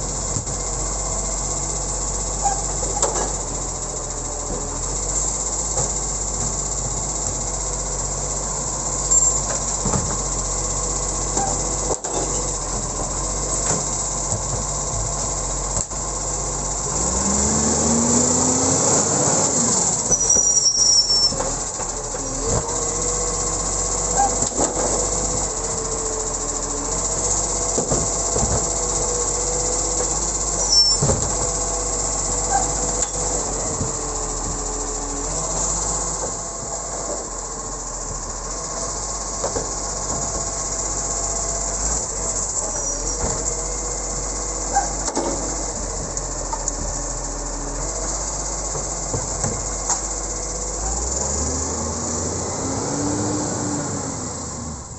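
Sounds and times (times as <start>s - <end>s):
diesel truck engine: 0.0s - 54.9s
hydraulic arm whine: 0.0s - 54.9s.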